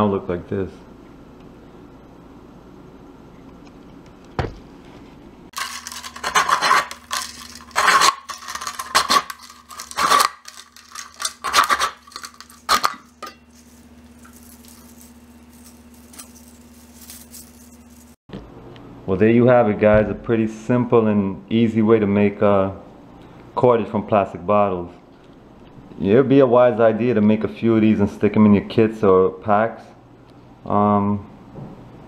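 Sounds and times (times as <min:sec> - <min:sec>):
knife blade slicing plastic bottle: 0:06.2 - 0:13.1.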